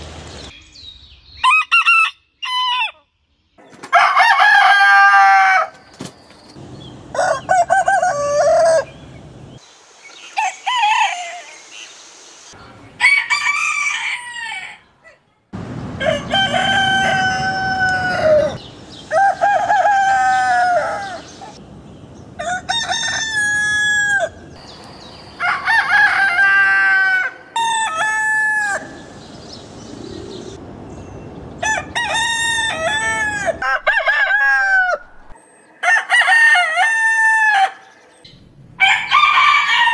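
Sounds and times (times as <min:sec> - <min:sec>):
roosters crowing: 0:01.4 - 0:03.0, 0:03.9 - 0:05.9, 0:07.1 - 0:09.1, 0:10.3 - 0:11.6, 0:13.0 - 0:14.9, 0:15.9 - 0:21.6, 0:22.3 - 0:24.6, 0:25.4 - 0:29.2, 0:31.5 - 0:38.0, 0:38.8 - 0:39.9.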